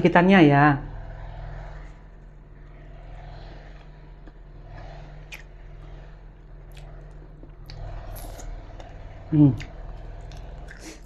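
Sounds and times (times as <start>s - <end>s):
steady low hum: 0.0s - 11.0s
person chewing: 5.3s - 5.5s, 6.6s - 11.0s.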